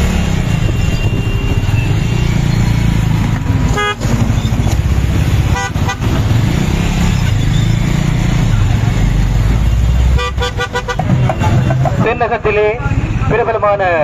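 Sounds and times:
road and wind noise rumble: 0.0s - 14.0s
vehicle horn toot: 0.5s - 2.4s, 3.8s - 4.2s, 5.5s - 6.2s, 10.2s - 11.8s.

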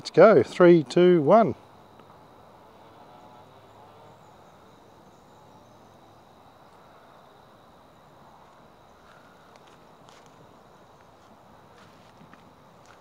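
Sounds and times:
insect droning: 0.0s - 13.0s.

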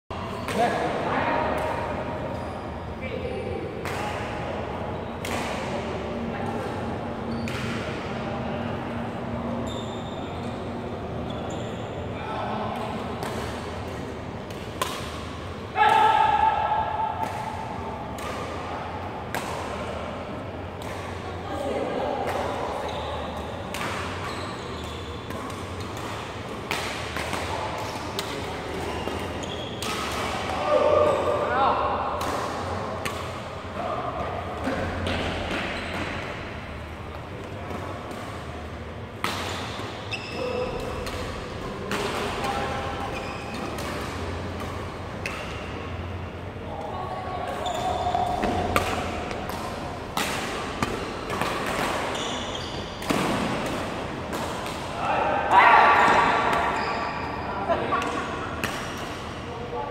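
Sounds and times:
shoes squeaking on court floor: 2.3s - 3.0s, 7.2s - 7.8s, 9.4s - 12.2s, 22.4s - 26.7s, 27.5s - 30.5s, 34.6s - 38.7s, 39.4s - 46.2s, 47.4s - 49.8s, 50.5s - 53.7s, 56.1s - 59.2s
racket hitting shuttlecock: 12.7s - 19.7s, 23.4s - 31.4s, 32.0s - 33.6s, 34.2s - 46.2s, 47.5s - 56.8s, 58.0s - 59.4s
racket striking shuttlecock: 12.8s - 16.1s, 48.0s - 52.2s.

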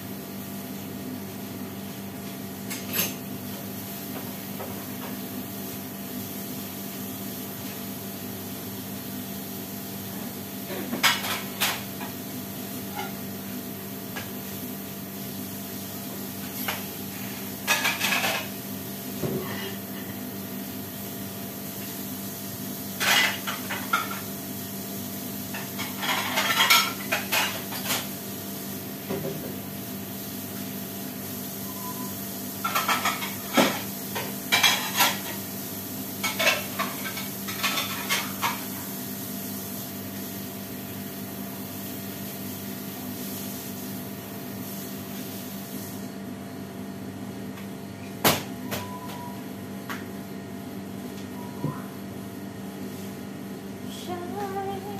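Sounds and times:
dishes and cutlery clinking: 25.8s - 28.0s, 32.6s - 33.5s, 34.5s - 35.4s
steady background hum: 46.0s - 54.9s.

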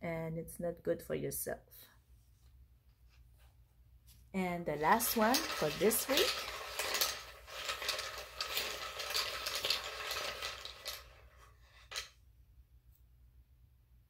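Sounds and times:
small hard pieces clattering: 4.8s - 12.1s.

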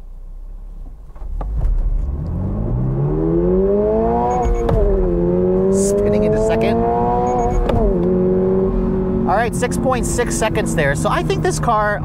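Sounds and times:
car engine revving: 1.2s - 12.0s
short high beeps: 4.3s - 4.7s, 7.2s - 7.7s.

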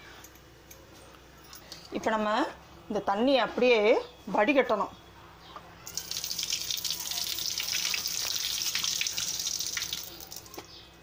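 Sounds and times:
water pouring into a sink: 5.9s - 10.5s.

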